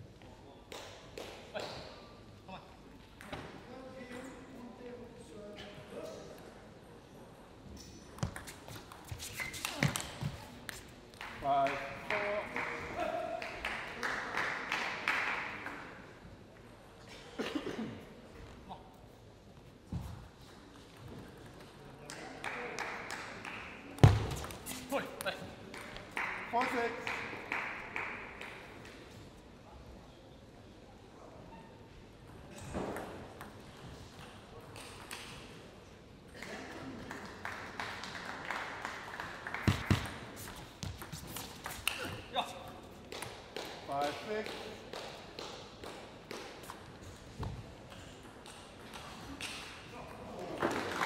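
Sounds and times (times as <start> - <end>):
light applause in hall: 8.8 - 16.3, 21.9 - 24.6, 25.2 - 29.2, 36.3 - 42.2, 43.0 - 46.8, 48.4 - 51.0
audience clapping: 11.1 - 15.8, 22.0 - 24.0, 25.7 - 28.7, 36.4 - 40.4, 50.4 - 51.0
person coughing: 17.1 - 18.0.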